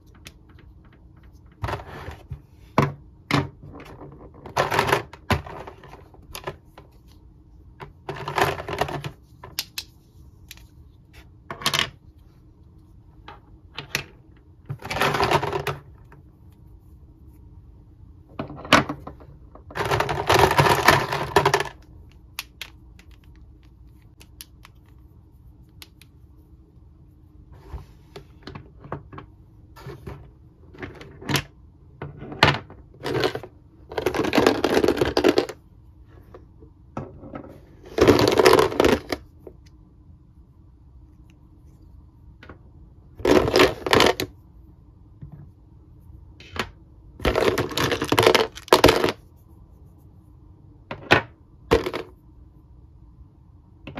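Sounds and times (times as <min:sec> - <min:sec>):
plastic toy parts clattering: 0:18.4 - 0:21.8, 0:32.6 - 0:35.6, 0:37.9 - 0:39.2, 0:43.2 - 0:44.3, 0:46.5 - 0:49.2.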